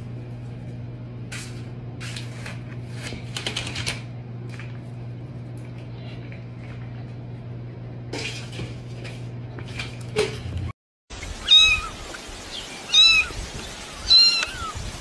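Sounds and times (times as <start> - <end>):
steady low hum: 0.0 - 10.7.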